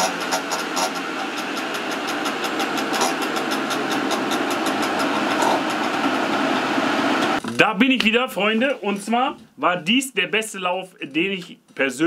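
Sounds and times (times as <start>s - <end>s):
two-stroke scooter engine running: 0.0s - 7.4s.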